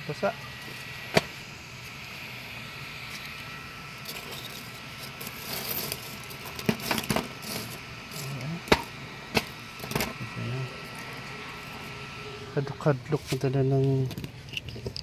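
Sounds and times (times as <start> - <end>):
charcoal cracking in a stove: 0.1 - 12.0.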